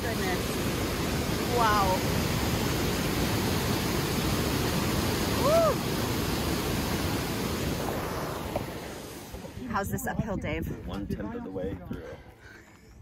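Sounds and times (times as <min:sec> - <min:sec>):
white water rushing: 0:00.0 - 0:10.4.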